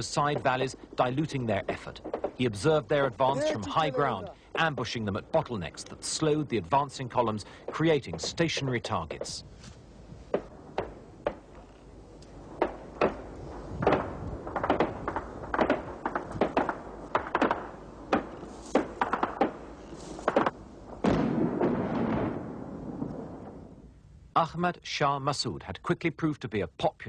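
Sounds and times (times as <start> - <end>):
gunshots: 12.6 - 23.4
loud rumbling blast: 20.8 - 23.9.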